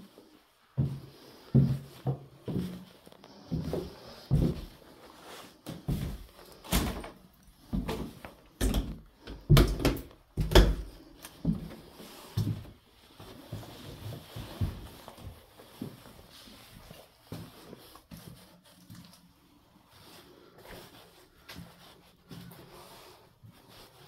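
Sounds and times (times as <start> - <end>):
footsteps on a staircase: 0.8 - 4.8, 5.6 - 18.3
footsteps scuffing on littered floor: 0.8 - 9.5, 10.4 - 19.2.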